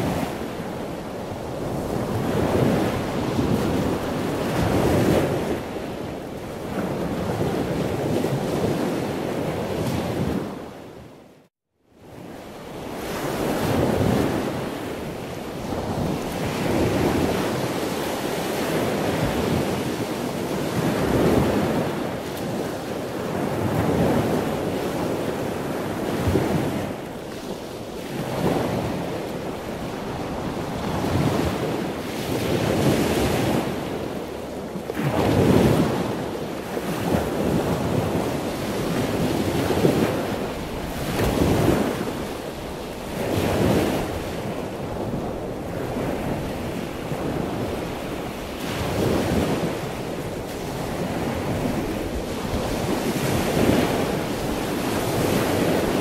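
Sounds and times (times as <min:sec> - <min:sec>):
wind buffeting microphone: 0:00.0 - 0:11.1, 0:12.0 - 0:56.0
water rushing along boat hull: 0:12.8 - 0:56.0.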